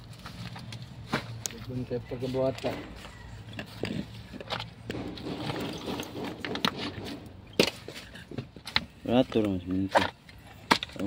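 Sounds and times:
concrete and rubble knocking: 0:03.9 - 0:08.9.

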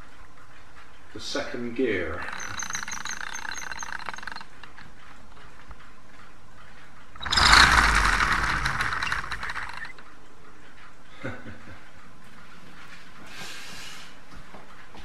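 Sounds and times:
plastic gears whirring and rattling: 0:01.8 - 0:05.9, 0:06.6 - 0:10.9.

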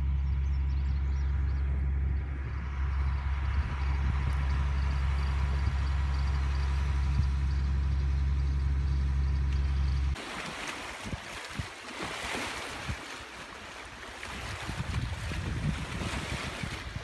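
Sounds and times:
engine idling: 0:00.0 - 0:10.2.

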